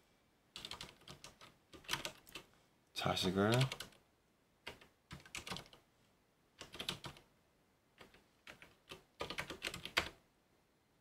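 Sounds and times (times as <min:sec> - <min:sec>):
typing on computer keyboard: 0:00.6 - 0:02.5, 0:03.4 - 0:04.0, 0:04.6 - 0:05.8, 0:06.6 - 0:07.3, 0:08.0 - 0:10.2.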